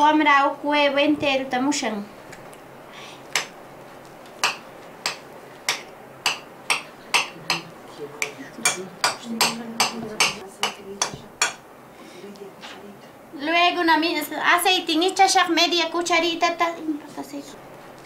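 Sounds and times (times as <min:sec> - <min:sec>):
metal utensil tapping a plate: 0:04.4 - 0:11.6.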